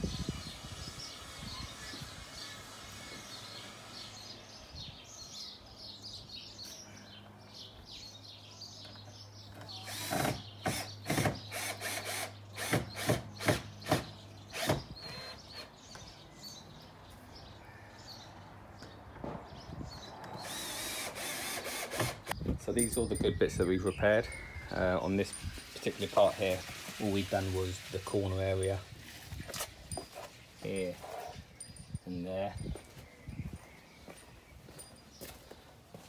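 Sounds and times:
cordless drill running: 0:09.9 - 0:15.4, 0:20.4 - 0:22.4.

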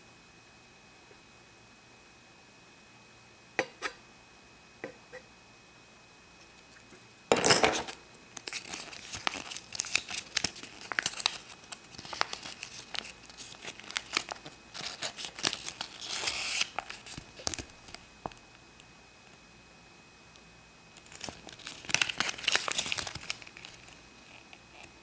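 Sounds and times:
paper leaflet crinkling: 0:08.4 - 0:18.0, 0:21.0 - 0:24.0.

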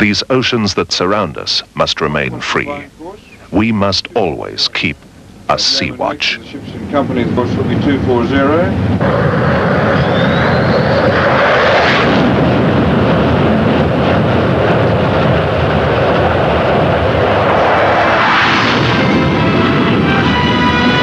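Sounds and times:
jet engine roaring: 0:06.2 - 0:21.0
music: 0:18.9 - 0:21.0.

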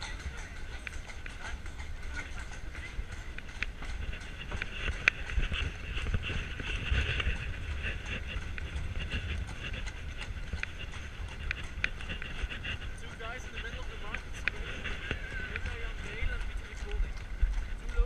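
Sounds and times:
carriage wheels rattling on cobbles: 0:00.0 - 0:18.0
hooves clip-clopping on cobblestones: 0:00.0 - 0:18.0.

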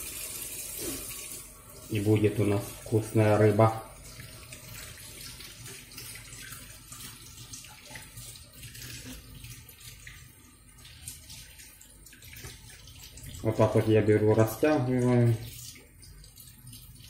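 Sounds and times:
fish rinsed by hand splashing: 0:00.7 - 0:17.0.

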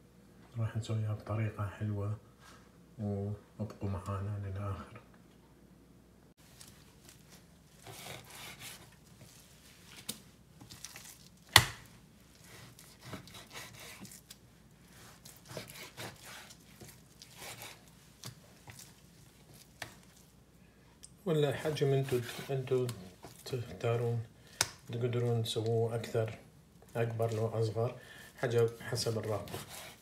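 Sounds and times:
knife slicing meat on board: 0:07.8 - 0:09.0, 0:12.5 - 0:14.4, 0:15.0 - 0:18.4, 0:22.0 - 0:23.4, 0:29.1 - 0:30.0.

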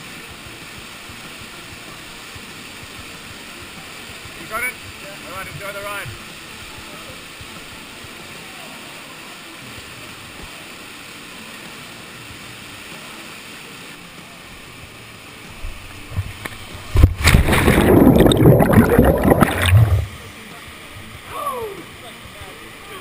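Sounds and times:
waterfall rushing: 0:15.4 - 0:20.3
muffled underwater churning: 0:15.6 - 0:20.3
person splashing into water: 0:16.9 - 0:20.2.

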